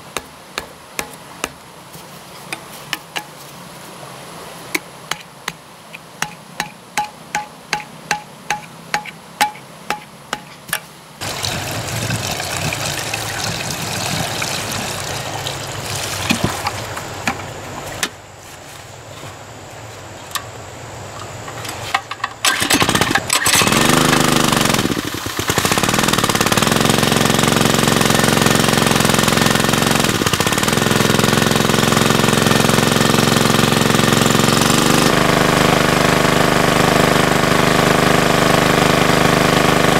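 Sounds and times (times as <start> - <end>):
stone knocking on bamboo stake: 0.1 - 1.6, 4.8 - 5.6, 6.2 - 10.9
small water pump engine running: 11.2 - 17.0, 22.4 - 39.9
water jet spraying: 11.2 - 17.0.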